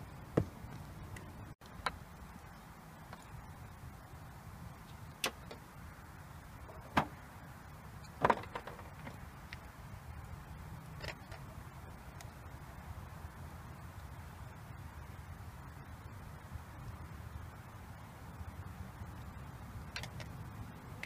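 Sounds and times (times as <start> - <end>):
low steady rumble: 0.0 - 21.0.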